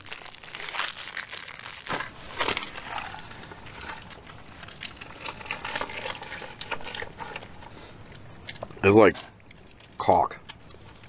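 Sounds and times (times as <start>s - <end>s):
plastic packet crinkling: 0.0s - 7.5s.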